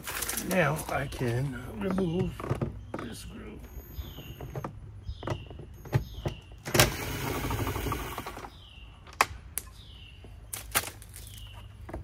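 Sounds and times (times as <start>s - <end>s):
cordless drill running: 6.7s - 8.4s.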